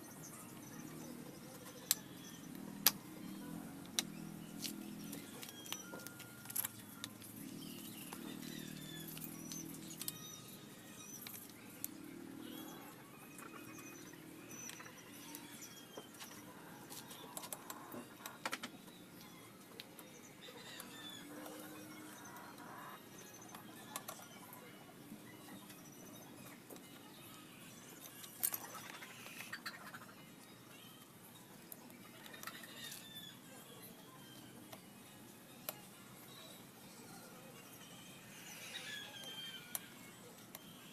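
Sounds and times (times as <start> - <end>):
low steady background sound: 0.0 - 40.9
faint bird chirps: 7.4 - 40.9.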